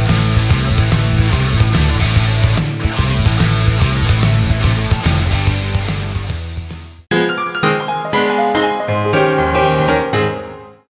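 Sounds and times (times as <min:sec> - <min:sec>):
keyboard chords music: 0:07.1 - 0:10.9.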